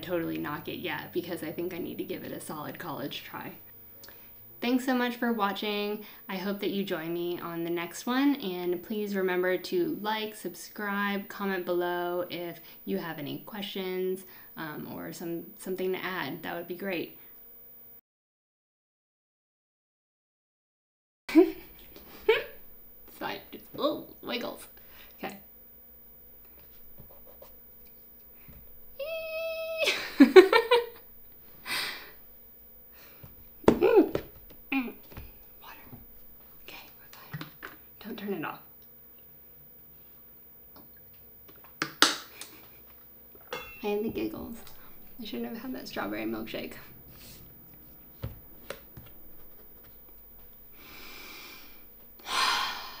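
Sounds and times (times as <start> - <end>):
woman giggling: 21.3 - 22.6, 29.0 - 31.0, 33.8 - 34.2
sharp breath: 50.8 - 53.0.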